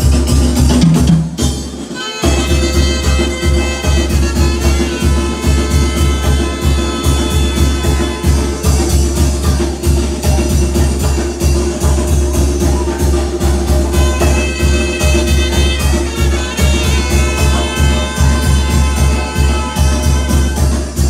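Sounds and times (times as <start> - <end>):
bass drum beating: 0.0 - 21.0
saxophone lines: 1.9 - 9.8, 12.4 - 21.0.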